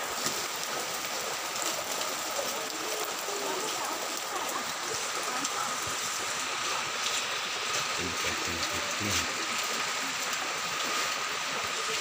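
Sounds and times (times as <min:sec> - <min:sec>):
rain splashing on concrete: 0:00.0 - 0:12.0.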